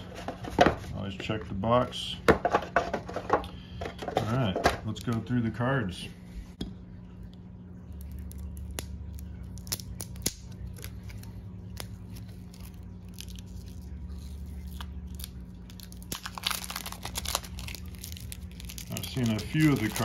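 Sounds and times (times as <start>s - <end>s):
cellophane tearing and crinkling: 8.0s - 20.0s.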